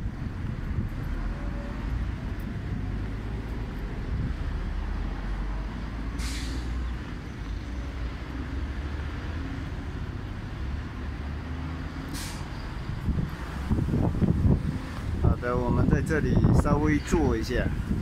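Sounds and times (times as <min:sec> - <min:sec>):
wind buffeting microphone: 0:00.0 - 0:06.0, 0:12.6 - 0:18.0
road traffic rumble: 0:00.0 - 0:18.0
short sharp hisses: 0:06.2 - 0:06.8, 0:12.1 - 0:12.6.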